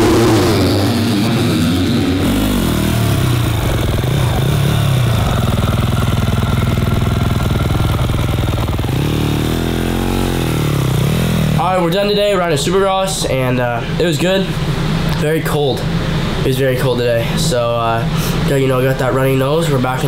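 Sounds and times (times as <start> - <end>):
motocross bike engine revving: 0.0 - 13.6.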